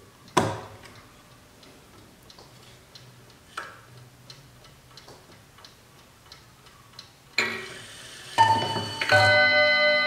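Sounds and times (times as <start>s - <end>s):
clock ticking: 0.0s - 7.6s
loud clock click: 3.6s - 10.0s.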